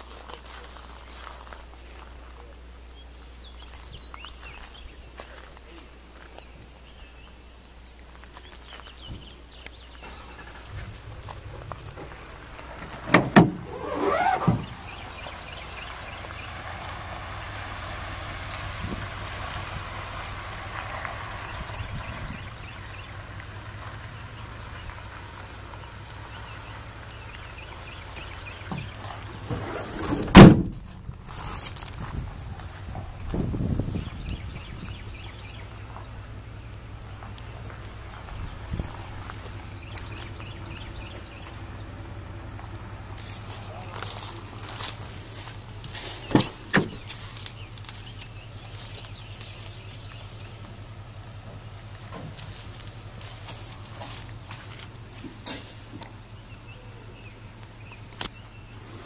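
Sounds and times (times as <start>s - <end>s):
outdoor background: 0.0s - 59.0s
tailgate slamming shut: 10.0s - 15.3s, 28.6s - 31.0s, 46.2s - 47.1s
car door latch clunks: 11.4s - 14.8s, 28.6s - 30.9s, 46.3s - 47.0s.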